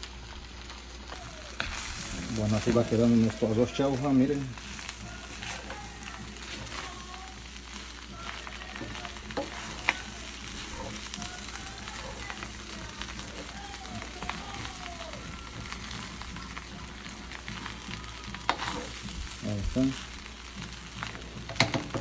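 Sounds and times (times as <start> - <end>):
fried rice sizzling in pan: 0.0 - 22.0.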